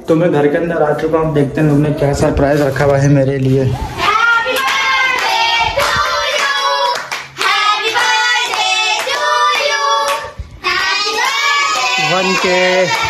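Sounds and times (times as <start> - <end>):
children singing: 4.0 - 13.0
hand clapping: 4.5 - 13.0.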